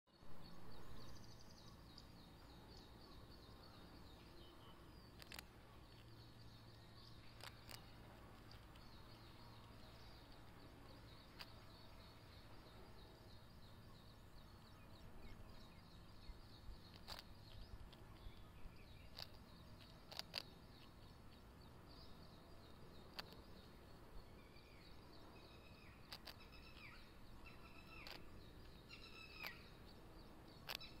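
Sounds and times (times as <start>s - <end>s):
small birds chirping: 0.1s - 31.0s
sharp clicks: 5.1s - 6.1s, 7.0s - 9.0s, 16.9s - 18.4s, 19.0s - 20.9s, 23.1s - 23.4s, 26.0s - 26.9s, 27.9s - 28.8s, 30.6s - 31.0s.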